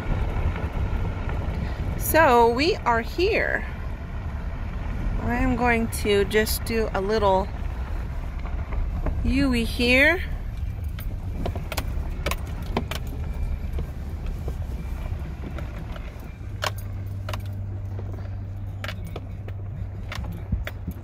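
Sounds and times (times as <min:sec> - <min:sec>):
engine and tyre rumble: 0:00.0 - 0:21.0
clicks and rattles: 0:15.4 - 0:21.0.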